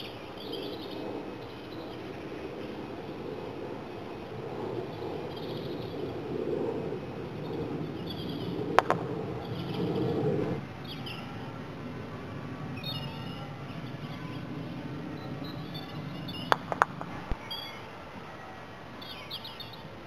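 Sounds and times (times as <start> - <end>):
birds chirping: 0.0 - 3.2, 7.4 - 10.1, 10.8 - 11.4, 12.8 - 19.9
croquet mallet hitting ball: 8.8 - 9.1, 16.5 - 17.1.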